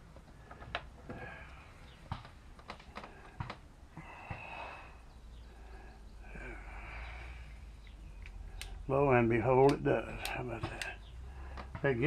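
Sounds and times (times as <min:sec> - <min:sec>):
soft breath: 0:03.0 - 0:08.9
clicks and taps of small parts: 0:10.2 - 0:11.0.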